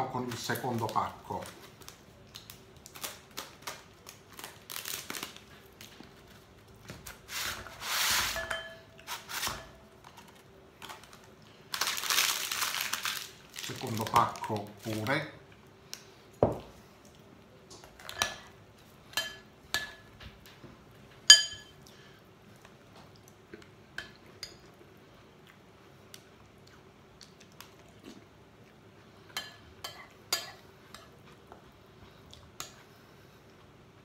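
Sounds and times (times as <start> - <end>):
metal spoon clinking on ceramic bowl: 8.4 - 8.8, 21.3 - 21.8.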